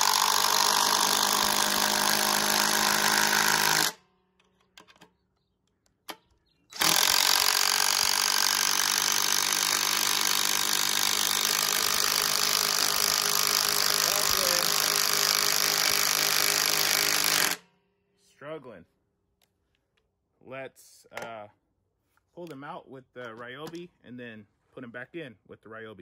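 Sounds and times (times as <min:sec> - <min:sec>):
impact driver rattling: 0:00.0 - 0:05.2, 0:06.7 - 0:17.6.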